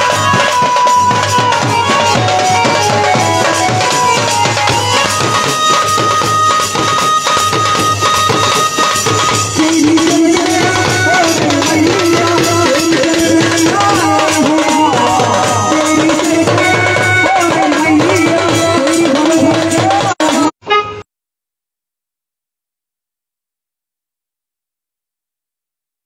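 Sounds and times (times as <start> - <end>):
drums and jingling percussion: 0.0 - 20.6
folk band melody: 0.0 - 21.0.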